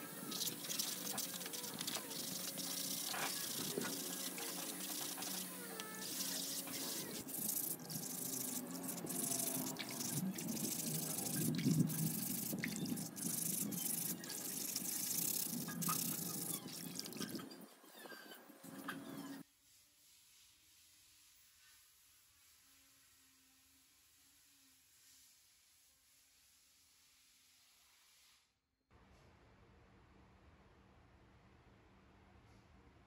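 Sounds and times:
sponge scourer scrubbing metal: 0.0 - 17.5
water sloshing and splashing: 0.3 - 17.6.

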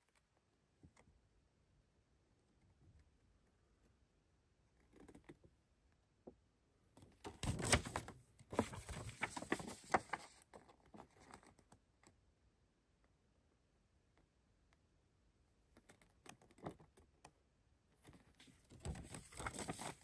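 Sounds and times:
paper pages rustling: 7.3 - 10.5, 18.4 - 20.0.

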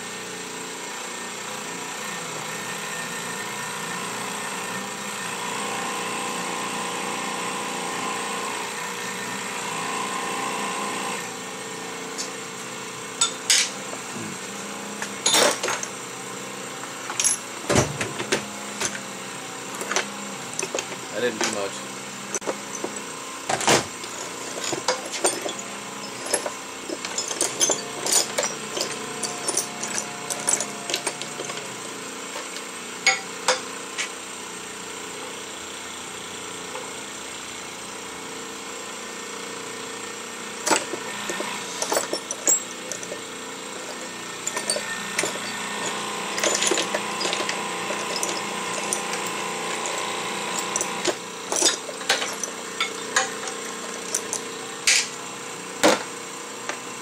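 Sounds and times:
steady machine hum: 18.6 - 33.3, 40.5 - 55.7
metal clanks and knocks: 22.4 - 31.6, 40.7 - 43.2, 43.8 - 55.1.

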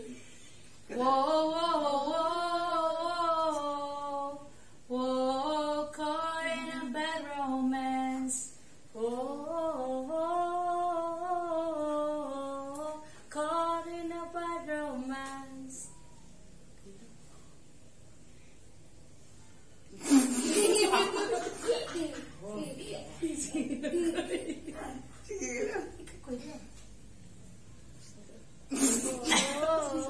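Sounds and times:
woman singing unaccompanied: 0.9 - 16.0, 28.8 - 30.0.

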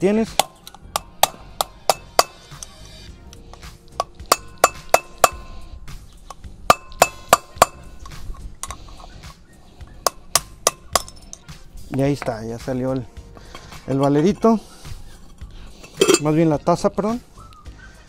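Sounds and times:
hammer striking metal screwdriver: 0.3 - 2.8, 3.5 - 5.5, 6.2 - 9.2, 10.0 - 12.4, 15.8 - 16.4.

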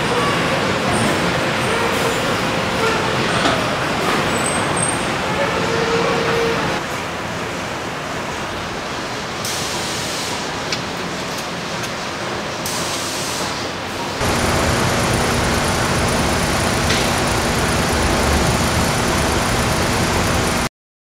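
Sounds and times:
hiss of machinery and air: 9.2 - 10.9, 12.5 - 20.2.

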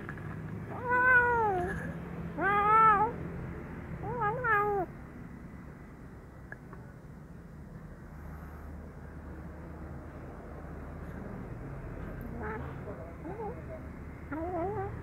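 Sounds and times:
kitten meowing: 0.7 - 1.7, 2.4 - 3.2.

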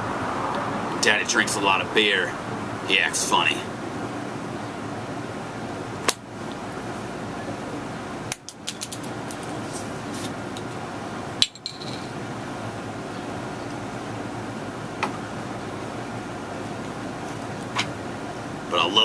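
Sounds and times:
steady background noise: 0.0 - 19.0
glass bottle clinking: 11.4 - 12.1.

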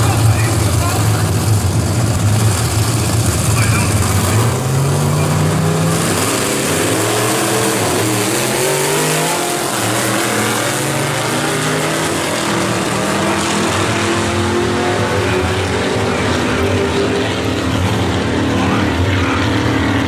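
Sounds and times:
drag car engines revving: 0.0 - 20.0.

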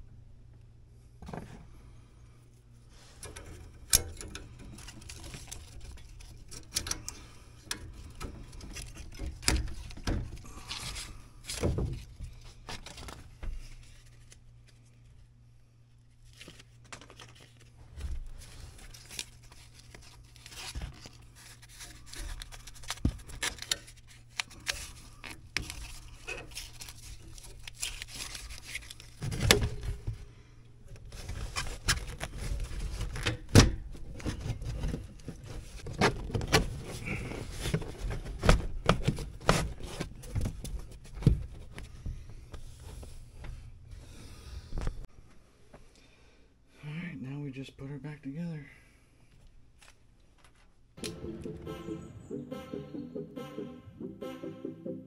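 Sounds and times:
steady low hum: 0.0 - 46.8
scrapes and rustles on metal: 2.6 - 12.0.

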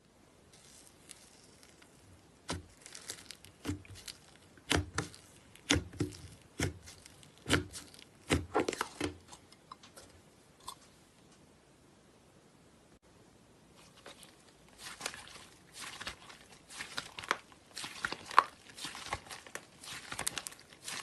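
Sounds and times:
fingers pressing slime: 2.4 - 9.2.

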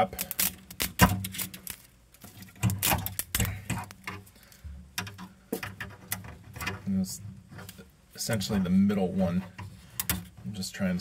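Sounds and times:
plastic clicking and snapping: 10.0 - 10.3.

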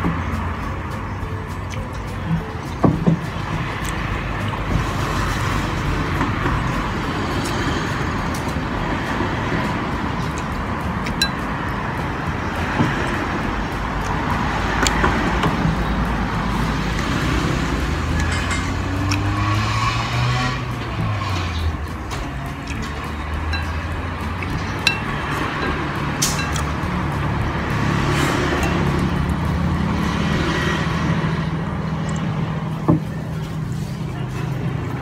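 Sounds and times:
engine rising in pitch: 0.0 - 35.0
traffic noise: 0.0 - 35.0
bowls and cutlery clinking: 10.3 - 11.6, 18.0 - 26.9, 28.5 - 29.4.

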